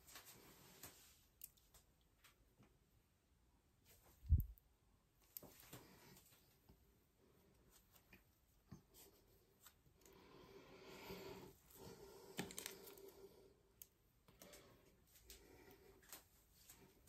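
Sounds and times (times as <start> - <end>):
foil packet crinkling and tearing: 12.4 - 13.0.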